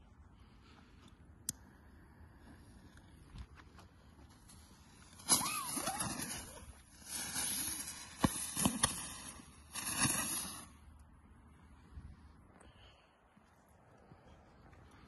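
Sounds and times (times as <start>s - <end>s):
firecracker hissing and spraying: 4.9s - 10.9s.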